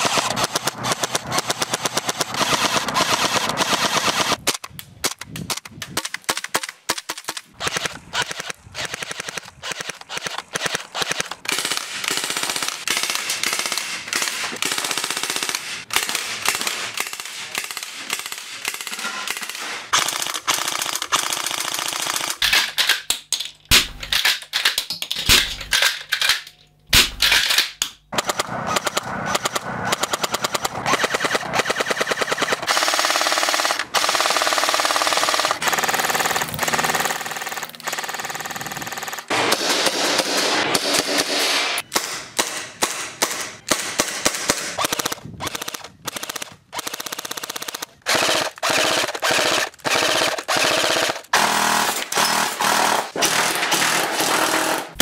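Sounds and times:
airsoft guns firing full-auto bursts: 0:00.0 - 0:04.5, 0:06.3 - 0:22.5, 0:28.1 - 0:55.0.

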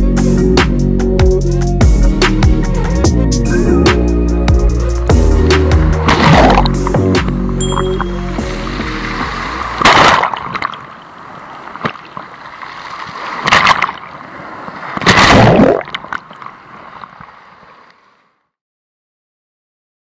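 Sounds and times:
water sloshing and gurgling: 0:05.1 - 0:17.9
water surges: 0:05.9 - 0:18.2.

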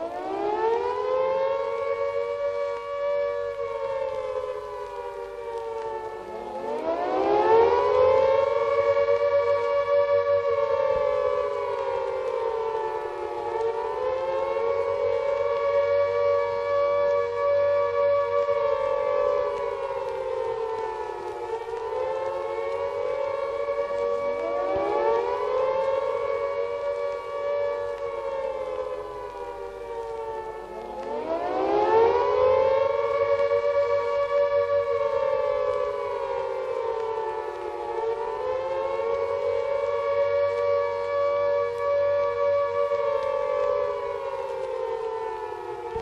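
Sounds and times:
sirens wailing: 0:00.0 - 0:46.0.

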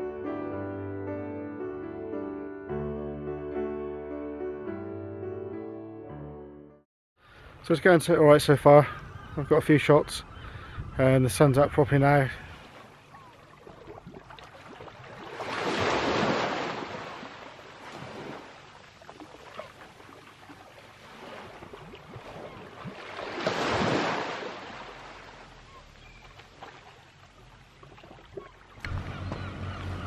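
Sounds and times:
small waves washing on sand: 0:12.5 - 0:28.6.

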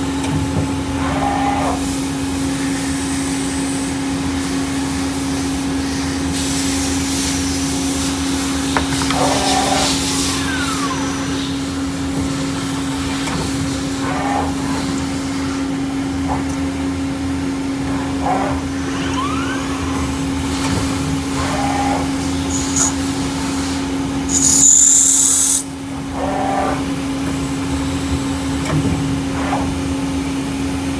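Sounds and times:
lathe machine hum and hiss: 0:01.8 - 0:17.9, 0:19.7 - 0:26.1
metal cutting noise: 0:21.4 - 0:23.2, 0:24.3 - 0:25.7.

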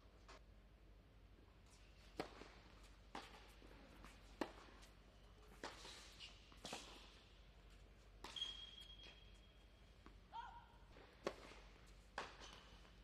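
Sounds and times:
shoe squeak on court: 0:08.2 - 0:09.7.

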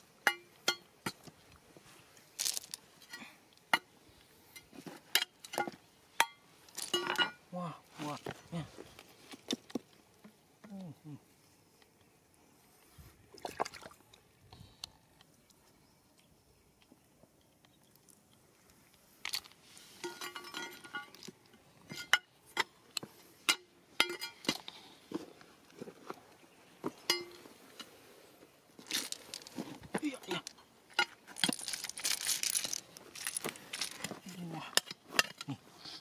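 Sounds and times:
stones clinking together: 0:02.3 - 0:03.9, 0:04.6 - 0:07.4, 0:28.8 - 0:35.6.

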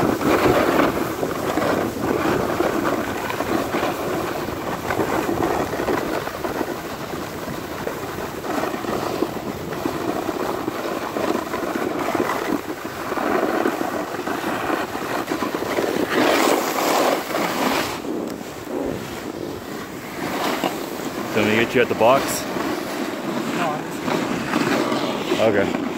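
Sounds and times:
snowboard scraping over snow: 0:00.0 - 0:25.9
wind on microphone: 0:00.0 - 0:25.9.

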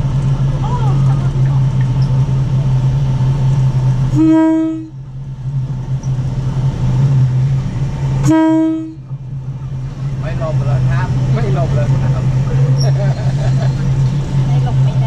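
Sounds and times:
train engine drone: 0:00.0 - 0:15.0
train horn blasts: 0:04.1 - 0:05.0, 0:08.2 - 0:09.2.

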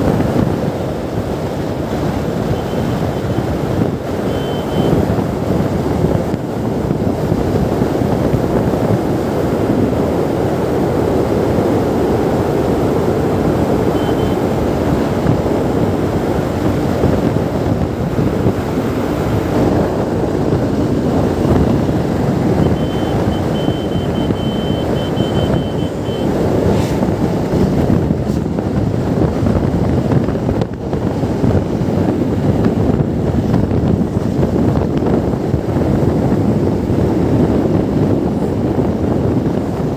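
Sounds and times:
road noise: 0:00.0 - 0:39.9
wind buffeting microphone: 0:00.0 - 0:39.9
faint high beeping: 0:04.2 - 0:05.0, 0:13.9 - 0:14.4, 0:22.6 - 0:26.3.

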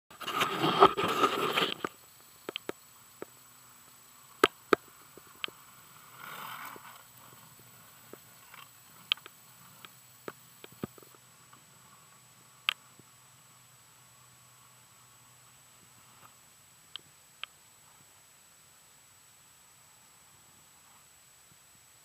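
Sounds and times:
longboard wheels sliding on asphalt: 0:00.1 - 0:16.6
sharp clicks: 0:01.5 - 0:03.3, 0:08.1 - 0:11.2.

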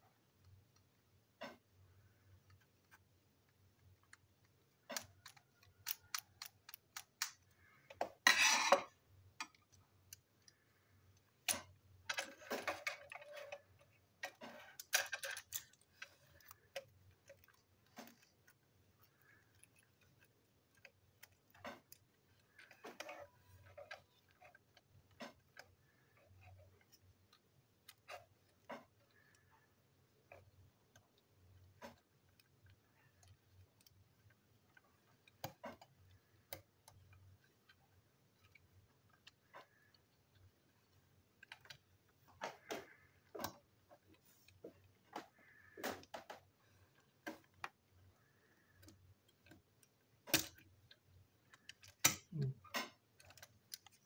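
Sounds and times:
plastic toy clicks and taps: 0:04.8 - 0:08.1, 0:48.6 - 0:50.7
parts scraping rustles: 0:07.0 - 0:09.6.

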